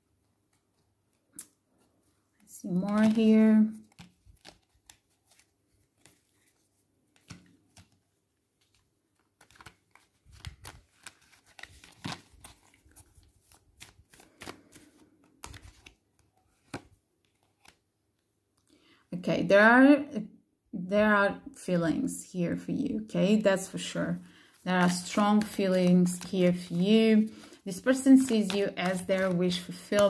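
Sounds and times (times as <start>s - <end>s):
cards being shuffled: 0.5s - 17.8s, 23.7s - 30.0s.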